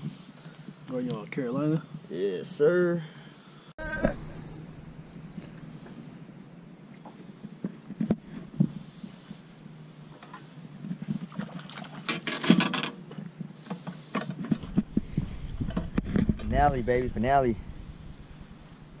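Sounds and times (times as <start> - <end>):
low rumble: 3.8 - 7.5, 14.6 - 19.0.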